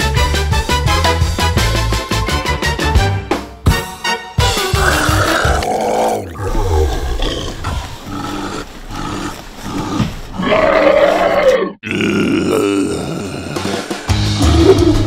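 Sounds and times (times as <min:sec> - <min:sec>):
monster growling and roaring: 0:04.7 - 0:15.0.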